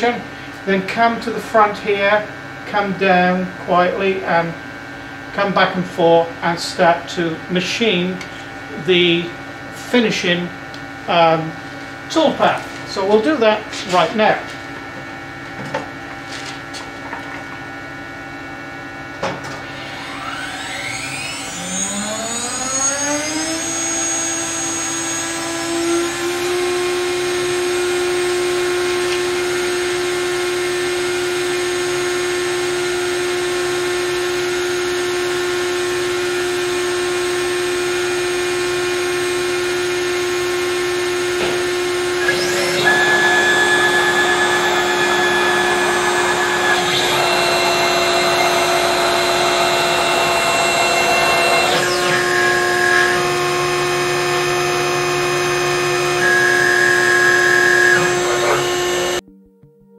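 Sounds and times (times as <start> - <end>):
router spindle whining: 19.3 - 59.2
bit cutting wood: 19.6 - 27.2, 41.0 - 59.2.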